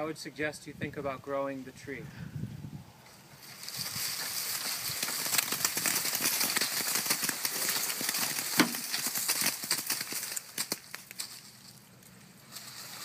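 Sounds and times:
fruit pattering onto dry leaves: 3.4s - 13.0s.

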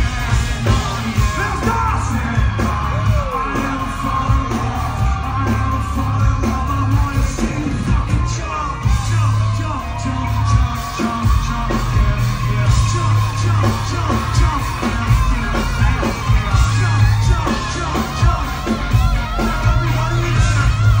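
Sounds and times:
live rock band playing loudly: 0.0s - 21.0s
voices singing and yelling: 0.0s - 21.0s.

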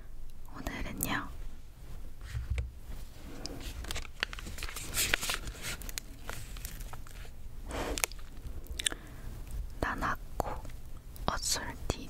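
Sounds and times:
light plastic crinkling: 2.3s - 9.7s.

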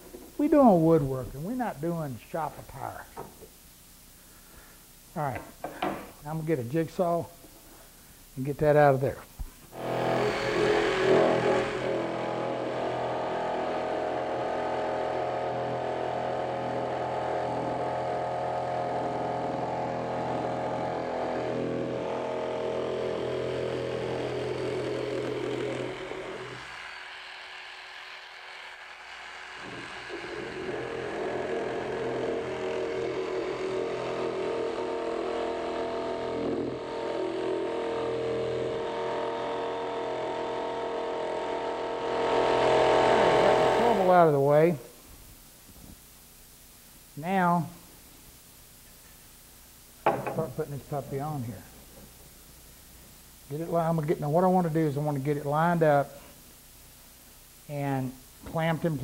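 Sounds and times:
electric jigsaw cutting wood: 9.8s - 44.1s.

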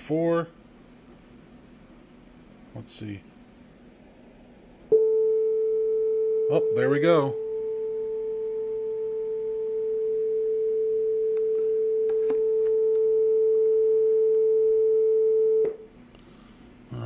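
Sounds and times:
steady test tone: 4.9s - 15.8s.

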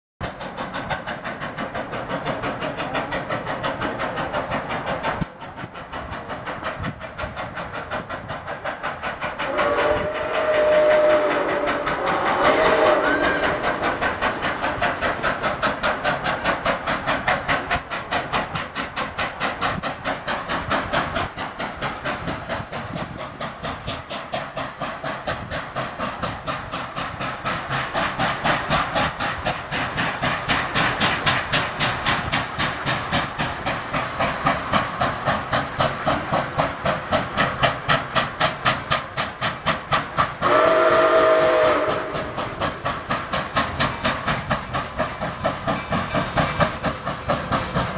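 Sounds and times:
steam locomotive exhaust chuffs: 0.2s - 47.9s
steam locomotive chime whistle: 9.5s - 14.0s, 40.4s - 42.6s.

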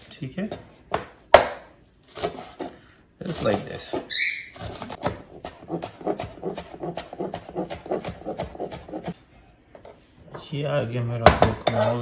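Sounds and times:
knife chopping on plastic board: 0.5s - 9.2s.

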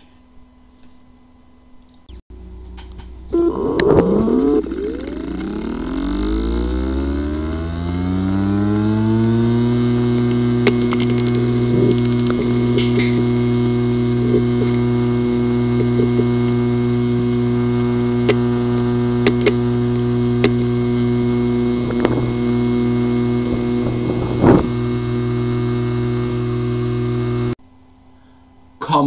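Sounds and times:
hard drive buzzing hum: 0.0s - 29.0s
hard drive sharp clicks: 1.9s - 27.6s
hard drive clunk: 9.6s - 27.2s.

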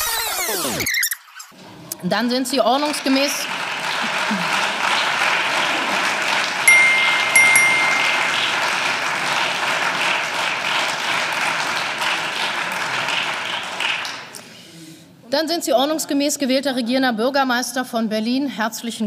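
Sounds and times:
crowd applauding: 2.7s - 14.4s
short bright chime tones: 6.7s - 8.8s.

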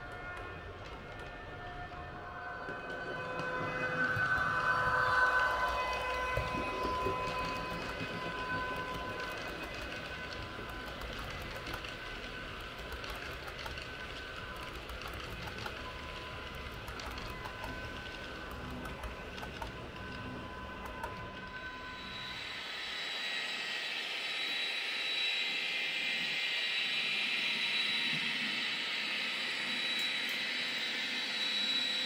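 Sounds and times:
model train rolling on track: 0.0s - 25.1s
thin steady whine: 0.0s - 32.0s
wheel clicks: 9.4s - 15.9s.

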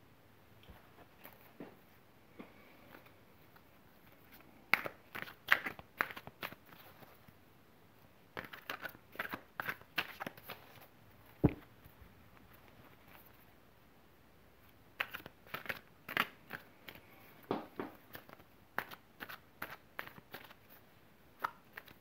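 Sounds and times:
cards being shuffled: 2.9s - 7.3s, 8.3s - 11.7s, 15.0s - 17.0s, 17.9s - 20.8s, 21.4s - 22.0s
low thump: 11.4s - 11.6s.

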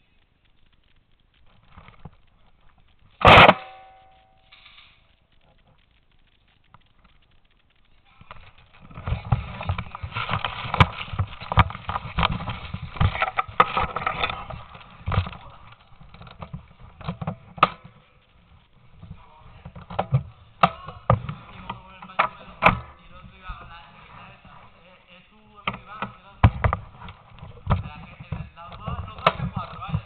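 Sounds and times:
sharp clicks and knocks: 0.4s - 24.8s, 25.6s - 30.0s
clothing and gear rustling: 8.0s - 25.1s.

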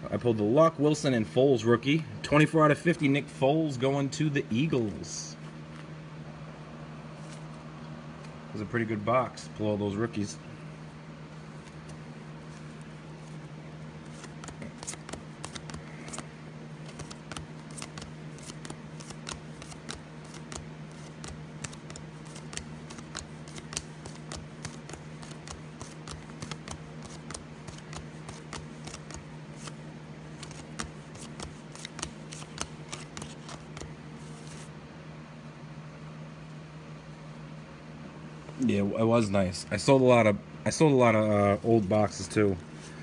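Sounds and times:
low steady hum: 0.0s - 43.0s
cards flipping with clicks: 11.6s - 13.4s, 14.0s - 34.7s.

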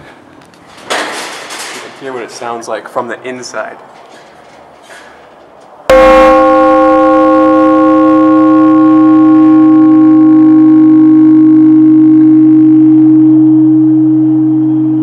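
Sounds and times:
church bell ringing: 5.9s - 13.6s.

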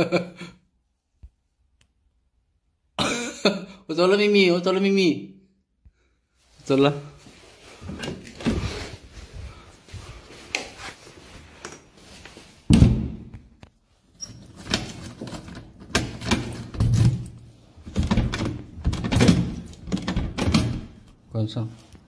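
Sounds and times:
door thudding shut: 12.7s - 13.3s
key rattling in lock: 14.7s - 17.5s.

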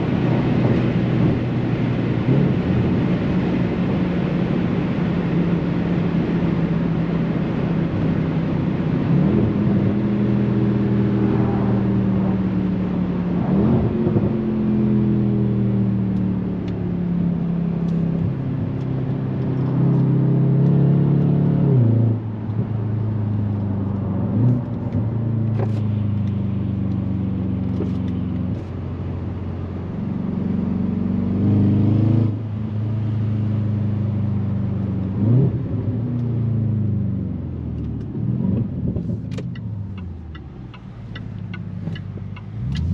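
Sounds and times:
car engine changing gear: 8.8s - 28.9s, 37.5s - 42.9s.

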